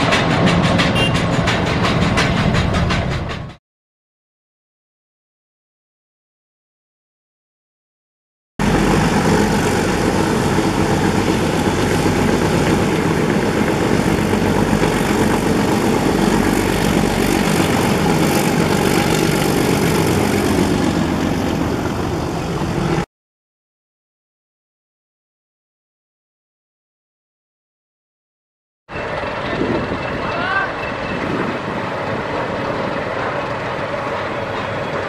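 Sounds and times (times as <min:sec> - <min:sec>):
diesel locomotive engine: 0:00.0 - 0:03.6, 0:08.6 - 0:23.1, 0:28.9 - 0:35.0
train coaches rolling: 0:00.0 - 0:03.6, 0:08.7 - 0:23.0, 0:28.9 - 0:35.0.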